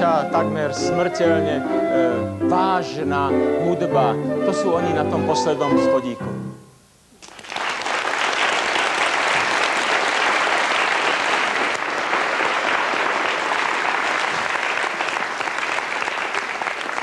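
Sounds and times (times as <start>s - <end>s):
audience applauding: 7.2s - 17.0s.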